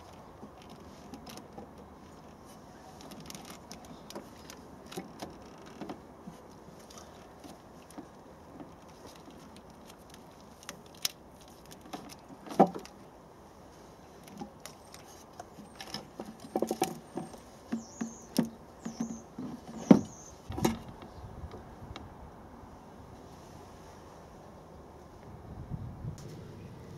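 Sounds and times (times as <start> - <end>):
engine parts clicking and rattling: 0.0 - 13.1, 14.1 - 21.6.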